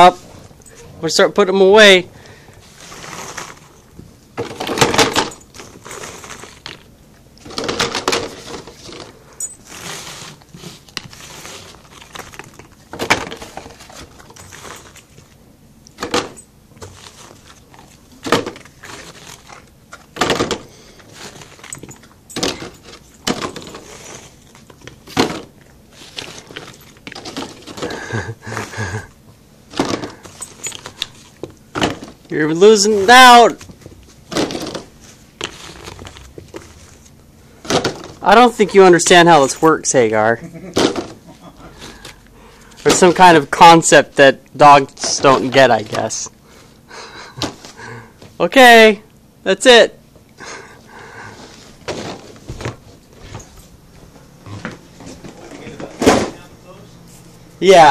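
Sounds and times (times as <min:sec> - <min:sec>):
dog biscuits clattering and crunching: 0:02.6 - 0:15.4, 0:16.0 - 0:29.1, 0:29.7 - 0:39.7.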